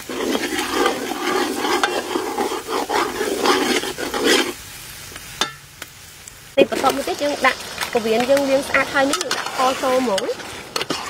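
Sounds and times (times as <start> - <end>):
metal ladle scraping pot: 0.0 - 4.6, 8.3 - 11.0
food sizzling in oil: 0.0 - 11.0.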